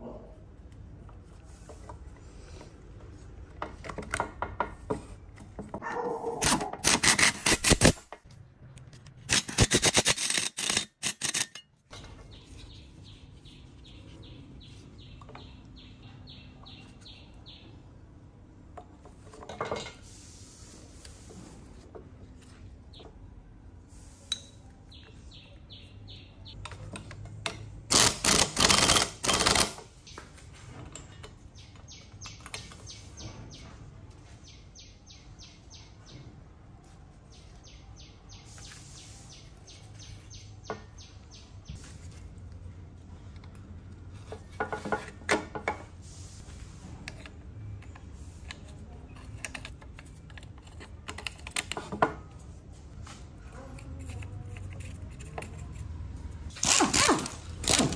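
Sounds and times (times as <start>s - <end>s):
ratchet clicking: 6.4s - 8.0s, 9.3s - 11.6s, 27.9s - 29.8s.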